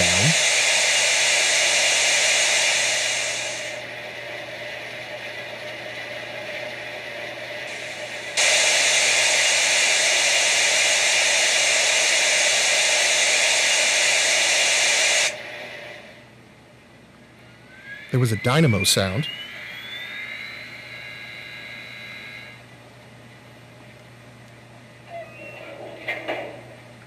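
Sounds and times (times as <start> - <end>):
steam hiss from small speaker: 0.0 - 3.8, 7.7 - 15.4.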